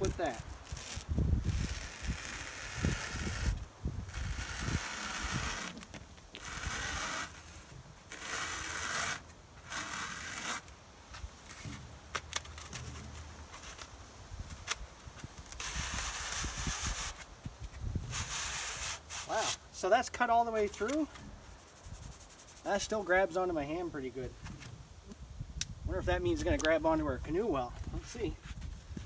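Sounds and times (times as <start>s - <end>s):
knife sawing through foam: 0.1s - 10.7s, 15.6s - 17.2s, 18.1s - 19.6s.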